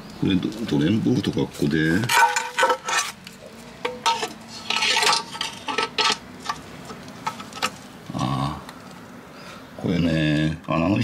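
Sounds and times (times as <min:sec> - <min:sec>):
metal scrape: 0:01.9 - 0:03.2, 0:03.8 - 0:07.8.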